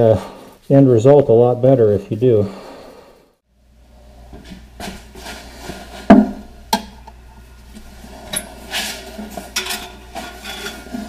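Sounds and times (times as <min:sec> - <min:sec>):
paint brush scrubbing: 0:07.9 - 0:11.0.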